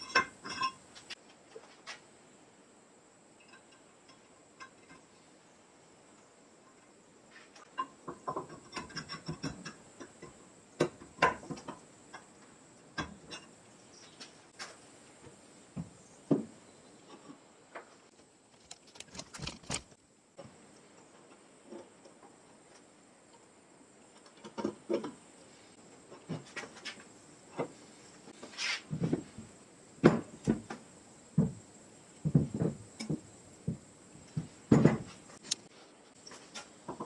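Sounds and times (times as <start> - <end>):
metal parts clicking and clinking: 0.0 - 0.8, 18.6 - 20.0.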